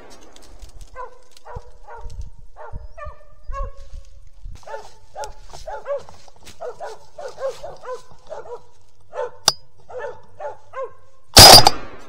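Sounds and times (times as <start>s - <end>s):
dogs barking: 0.9s - 3.9s, 4.6s - 11.2s
sharp click: 11.4s - 11.8s.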